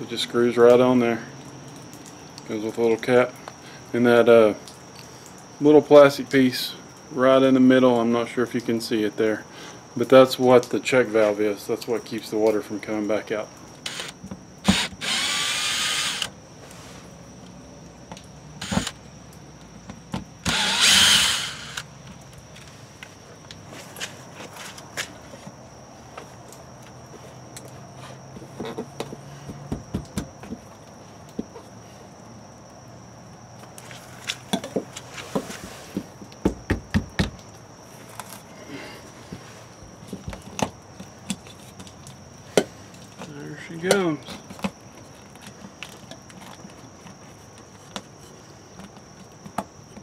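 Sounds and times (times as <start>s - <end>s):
cordless drill whining: 13.8s - 16.3s, 18.6s - 19.0s, 20.4s - 21.9s.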